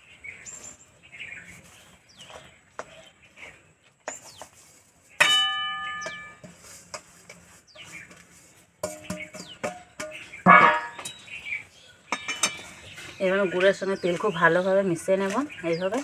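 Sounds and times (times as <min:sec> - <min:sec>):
birds chirping: 0:00.0 - 0:16.0
metal scraping in pan: 0:04.2 - 0:13.4
metal spatula striking metal pan: 0:05.2 - 0:07.1, 0:08.8 - 0:11.3.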